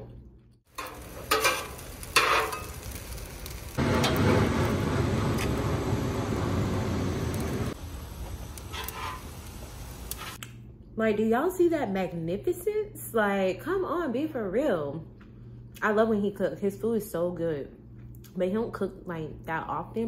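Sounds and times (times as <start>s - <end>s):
food sizzling on a griddle: 0.7s - 10.4s.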